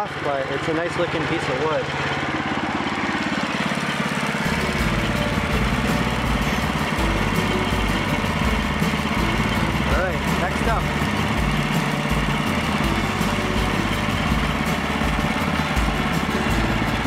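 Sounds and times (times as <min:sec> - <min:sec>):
bandsaw mill engine running: 0:00.0 - 0:17.0.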